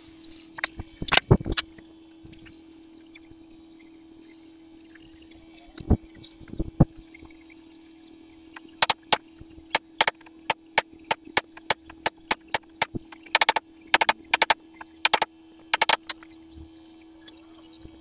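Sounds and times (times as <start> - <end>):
steady low hum: 8.5 - 16.7
sharp knocks: 8.6 - 9.2, 9.8 - 16.1.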